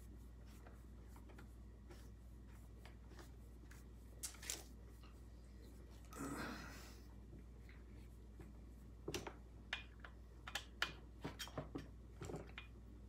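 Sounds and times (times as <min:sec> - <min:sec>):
small clicks and taps: 0:08.4 - 0:12.8.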